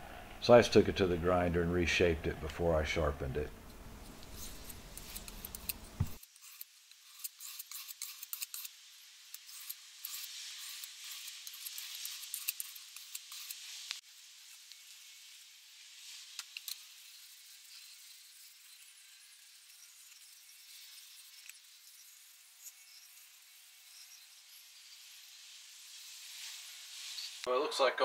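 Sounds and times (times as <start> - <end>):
knife scraping on sharpening stone: 4.2 - 5.8, 6.4 - 8.7.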